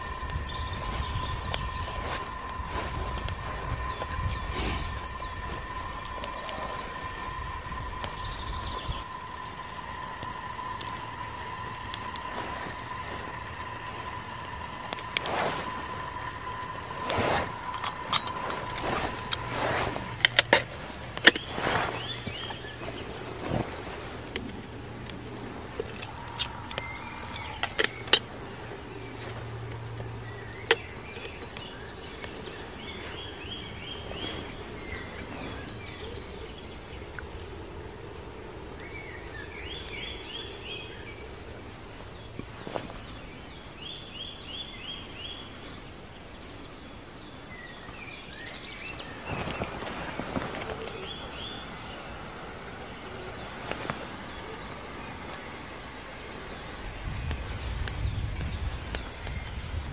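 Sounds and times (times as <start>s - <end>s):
wood fire burning in a stove: 0.0s - 43.4s, 48.2s - 59.9s
quiet forest ambience: 0.0s - 59.9s
songbirds trilling: 0.0s - 59.9s
camp gear clicks and knocks: 17.6s - 21.5s.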